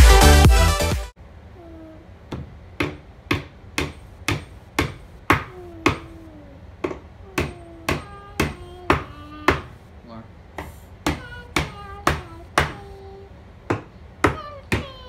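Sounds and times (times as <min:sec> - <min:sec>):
hammer tapping nails into wood: 0:02.3 - 0:06.2, 0:06.8 - 0:09.7, 0:10.6 - 0:12.9, 0:13.7 - 0:15.0.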